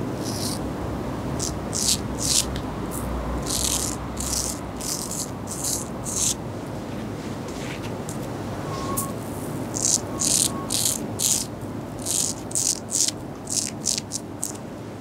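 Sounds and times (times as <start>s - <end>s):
razor scraping stubble: 0.2s - 0.6s, 1.4s - 6.4s, 9.8s - 14.6s.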